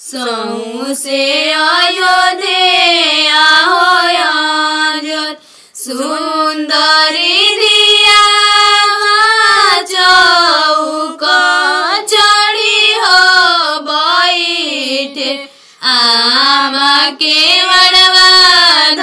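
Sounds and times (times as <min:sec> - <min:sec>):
woman singing unaccompanied: 0:00.0 - 0:19.0.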